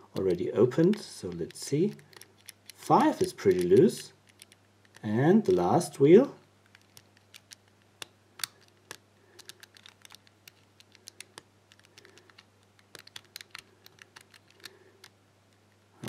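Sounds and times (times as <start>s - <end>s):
padlock wheels clicking: 0.7s - 5.0s, 6.7s - 15.1s.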